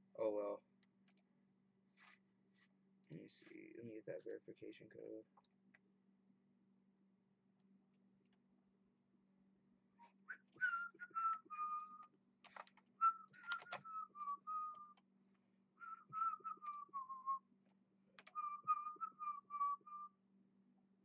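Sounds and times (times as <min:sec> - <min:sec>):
person whistling a tune: 0:10.0 - 0:12.1, 0:13.0 - 0:15.0, 0:15.8 - 0:17.4, 0:18.3 - 0:20.1
keyboard taps: 0:18.2 - 0:18.4.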